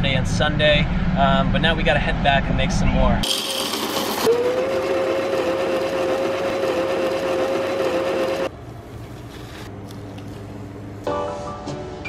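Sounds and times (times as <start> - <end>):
coffee grinder motor whine: 3.2 - 8.5
music: 11.1 - 12.0.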